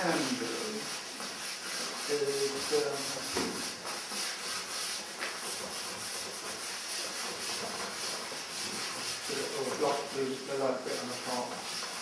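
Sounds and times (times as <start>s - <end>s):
man speaking: 0.0s - 0.8s
pastel scratching across paper: 0.0s - 12.0s.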